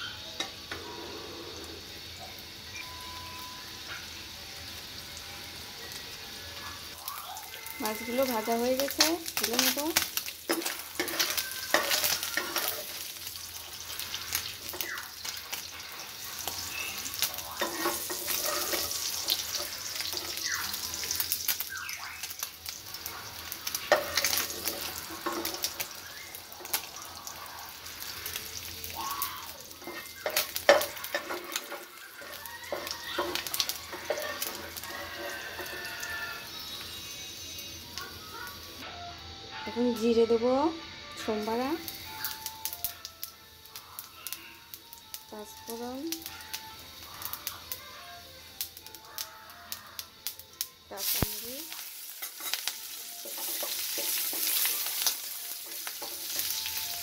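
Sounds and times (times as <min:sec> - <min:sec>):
hot oil sizzling and crackling: 0:00.0 - 0:57.0
metal spoon scraping a pan: 0:07.9 - 0:21.3, 0:23.0 - 0:25.9, 0:29.7 - 0:36.6, 0:51.0 - 0:57.0.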